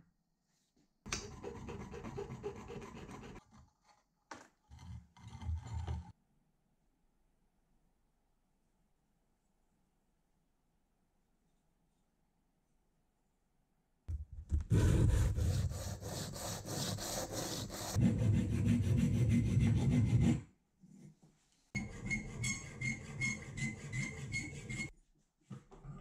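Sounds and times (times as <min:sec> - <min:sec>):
file scraping aluminium: 0:01.2 - 0:04.0, 0:14.7 - 0:20.5, 0:21.8 - 0:24.9
sanding metal by hand: 0:14.7 - 0:20.4.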